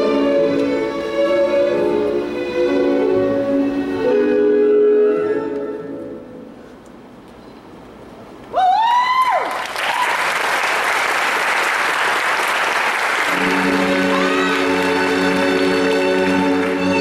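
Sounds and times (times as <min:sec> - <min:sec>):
orchestral music: 0:00.0 - 0:06.6, 0:13.2 - 0:17.0
high drawn-out cheer: 0:08.6 - 0:15.5
audience applause: 0:09.1 - 0:17.0.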